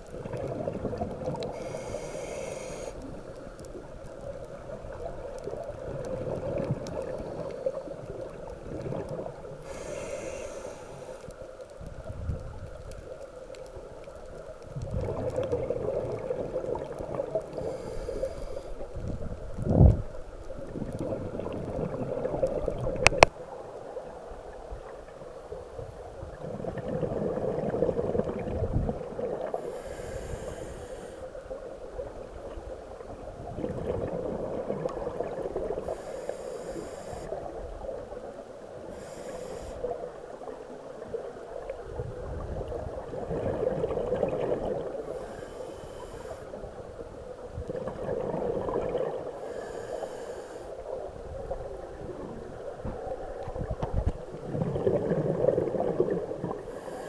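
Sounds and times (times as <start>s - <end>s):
diver breathing through regulator: 1.5s - 3.5s, 9.6s - 11.4s, 17.5s - 18.9s, 29.6s - 31.4s, 35.7s - 37.4s, 38.9s - 40.0s, 45.0s - 46.8s, 49.3s - 50.8s, 56.5s - 57.0s.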